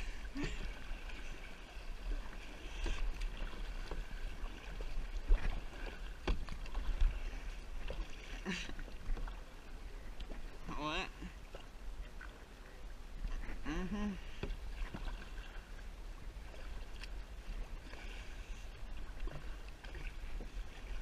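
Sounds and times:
paddle splashing in water: 0.0s - 21.0s.

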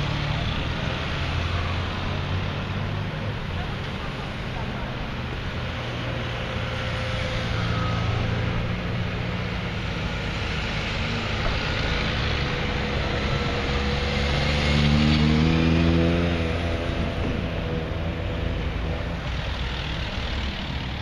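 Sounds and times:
motor scooters passing: 0.0s - 21.0s
car passing: 6.4s - 21.0s.

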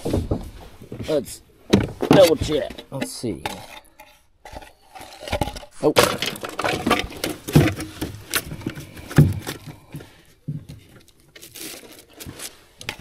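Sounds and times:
plastic crinkling: 11.0s - 13.0s.

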